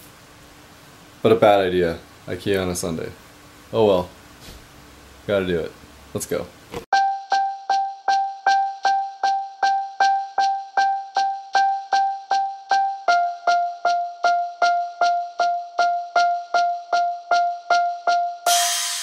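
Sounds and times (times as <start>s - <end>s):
repeated single music note: 7.0s - 19.0s.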